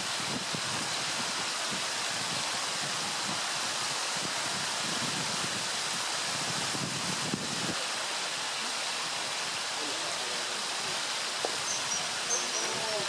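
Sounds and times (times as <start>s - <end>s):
wind buffeting microphone: 0.0s - 3.4s, 4.0s - 7.8s
stream water rushing: 0.0s - 13.0s.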